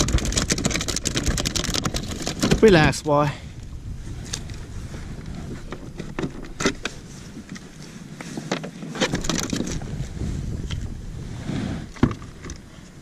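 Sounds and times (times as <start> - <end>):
clicks and knocks in kayak: 0.0 - 2.9, 5.5 - 9.9, 11.9 - 12.9
wind buffeting microphone: 0.0 - 8.4, 9.0 - 13.0.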